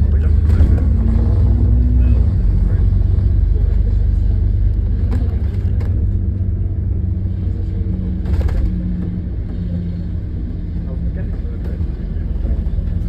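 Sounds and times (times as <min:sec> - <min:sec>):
bus engine and road rumble: 0:00.0 - 0:13.0.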